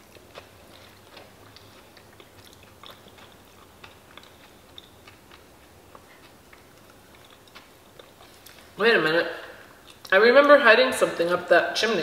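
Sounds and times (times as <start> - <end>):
person chewing: 0.0 - 8.8, 9.6 - 10.2.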